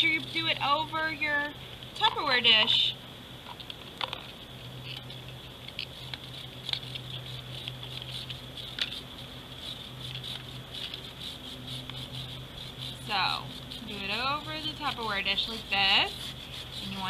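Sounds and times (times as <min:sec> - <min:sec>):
high-pitched insect buzz: 0:05.8 - 0:17.0
chalk scraping on metal grater: 0:05.9 - 0:17.0.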